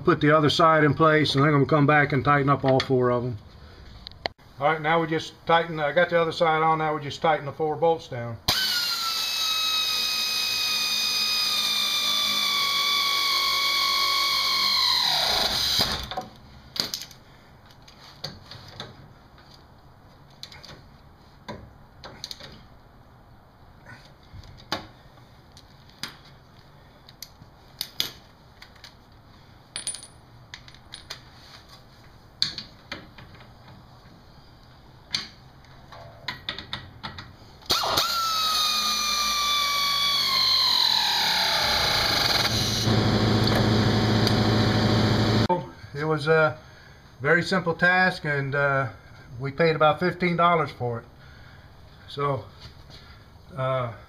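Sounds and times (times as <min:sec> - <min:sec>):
pneumatic air ratchet whine: 0:08.5 - 0:16.2, 0:37.7 - 0:45.5
metal tools clinking: 0:29.8 - 0:31.2.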